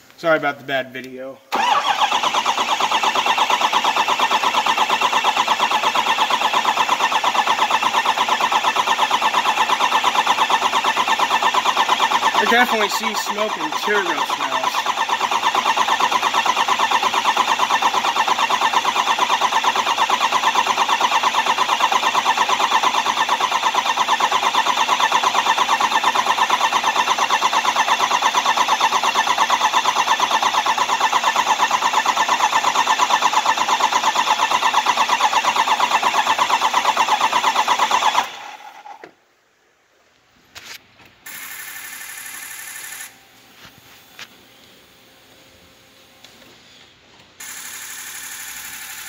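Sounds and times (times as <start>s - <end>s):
diesel engine cranking: 1.5s - 39.0s.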